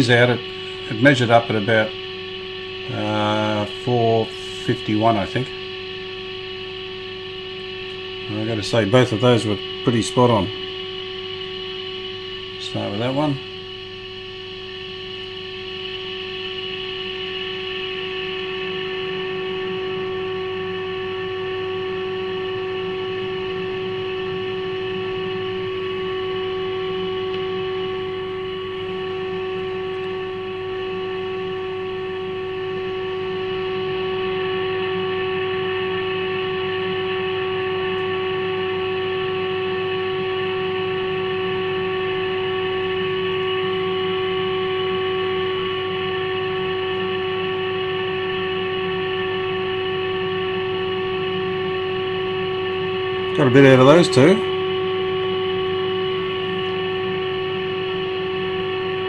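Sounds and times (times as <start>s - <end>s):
low mains hum: 0.0s - 59.0s
steady test tone: 0.0s - 59.0s.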